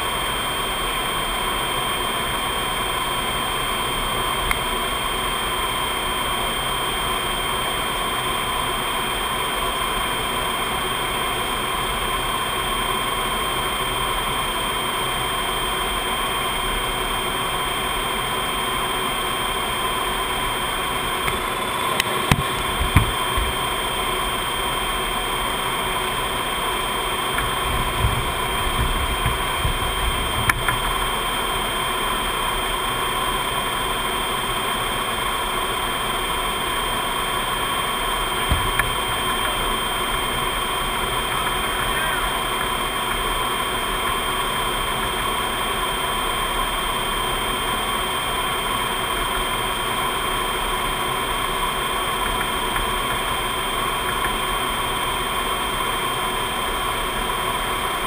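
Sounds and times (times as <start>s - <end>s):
airflow and jet engines rushing: 0.0s - 58.0s
steady whining tones: 0.0s - 58.0s
short low thumps: 27.4s - 30.7s.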